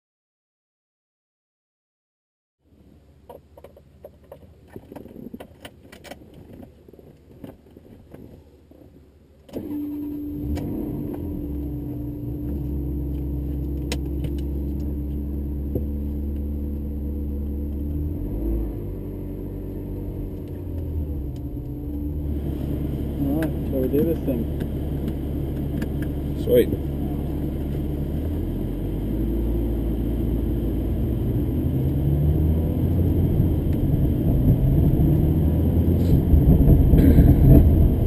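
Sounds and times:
car engine idling: 0:08.4 - 0:18.2, 0:18.8 - 0:38.0.

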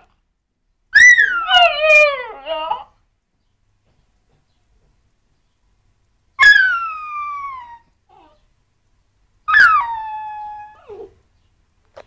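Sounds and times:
puppy whining: 0:01.0 - 0:03.0, 0:06.4 - 0:08.5, 0:09.5 - 0:11.2.

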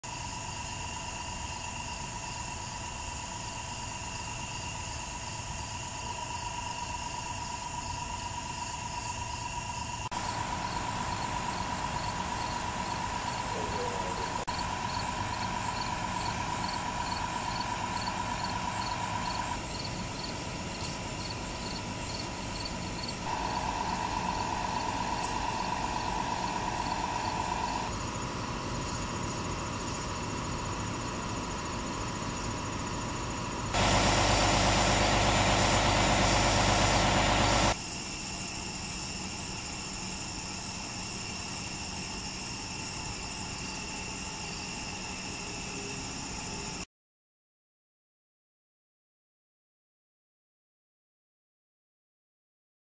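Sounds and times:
crickets chirping: 0:00.0 - 0:46.9
vehicle engines idling: 0:00.1 - 0:37.8.

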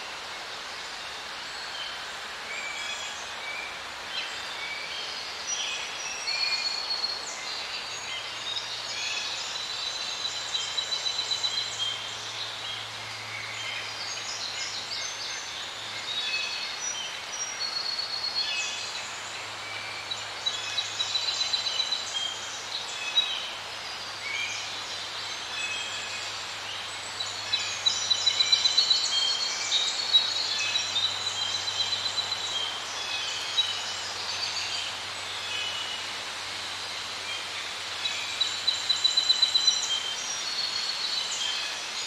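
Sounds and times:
steady hiss: 0:00.0 - 0:42.0.

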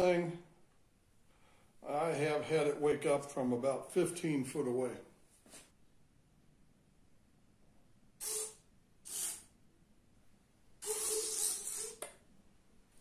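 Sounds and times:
micro servos whirring: 0:08.2 - 0:09.5, 0:10.8 - 0:12.1.

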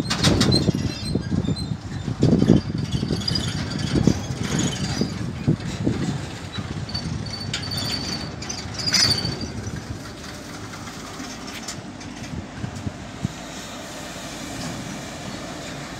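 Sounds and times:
train wheels rumbling and clicking: 0:00.0 - 0:15.9
high thin wheel squeal: 0:00.5 - 0:05.9, 0:06.5 - 0:11.6.

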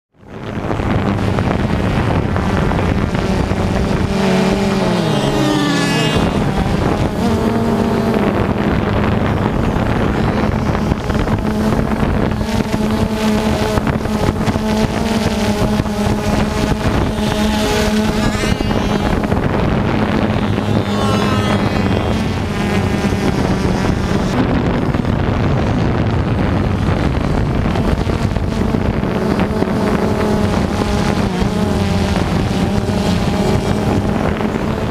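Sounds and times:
drone propellers humming: 0:00.2 - 0:34.9.

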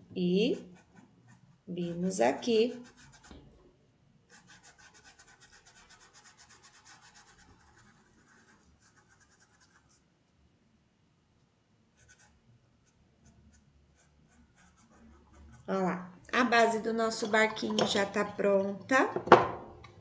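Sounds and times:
paintbrush scrubbing fabric: 0:00.5 - 0:03.4, 0:04.3 - 0:10.1, 0:12.1 - 0:15.8.

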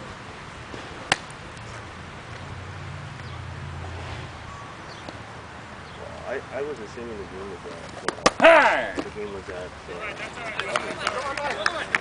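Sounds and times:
baseball smacking into mitt: 0:00.7 - 0:01.3.

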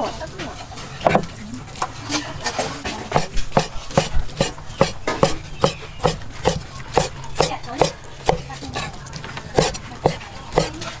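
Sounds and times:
cleaver chopping on wooden block: 0:03.1 - 0:11.0.

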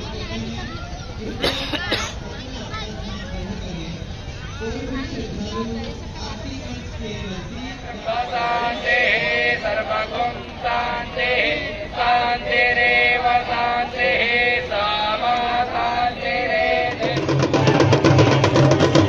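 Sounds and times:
devotional chant singing: 0:04.6 - 0:19.0
fast drum beat: 0:17.0 - 0:19.0.

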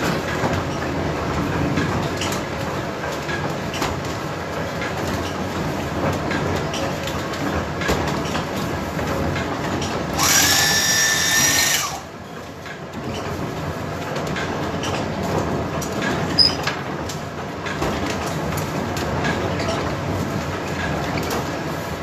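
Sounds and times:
windmill machinery rumble and clatter: 0:00.0 - 0:10.2, 0:12.1 - 0:22.0
sewing machine whine: 0:10.2 - 0:12.0.

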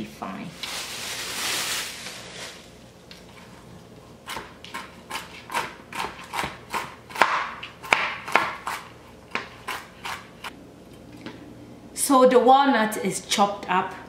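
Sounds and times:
knife chopping on cutting board: 0:04.2 - 0:10.5.

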